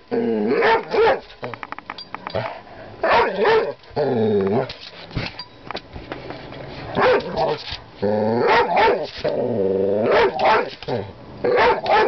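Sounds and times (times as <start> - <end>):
dog barking: 0.6 - 1.2, 3.0 - 3.7, 7.0 - 7.4, 8.5 - 9.1, 10.1 - 10.8, 11.5 - 12.0.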